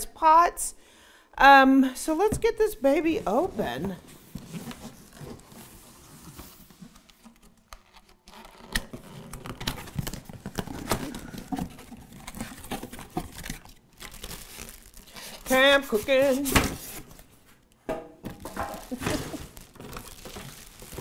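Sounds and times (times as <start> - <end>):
cardboard box rustling and scraping: 3.2 - 7.1, 18.4 - 21.0.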